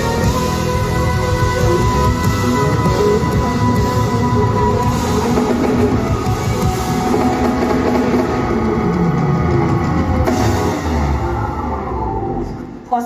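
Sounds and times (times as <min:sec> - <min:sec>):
drum kit beating: 0:00.0 - 0:12.6
rock band playing: 0:00.0 - 0:12.9.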